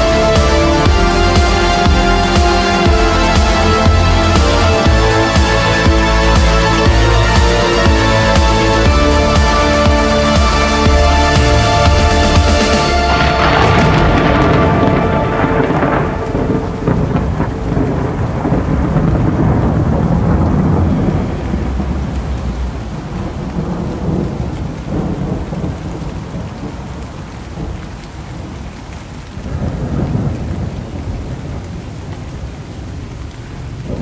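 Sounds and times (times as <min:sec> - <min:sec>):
synth music: 0:00.0 - 0:24.3
deep rolling thunder: 0:00.0 - 0:28.6, 0:29.2 - 0:34.0
rain falling steadily: 0:00.0 - 0:34.0.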